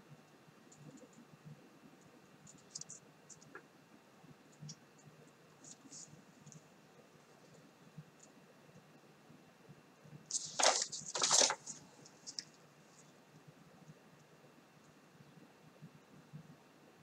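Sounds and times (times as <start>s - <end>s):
paper leaflet crinkling: 10.3s - 12.5s.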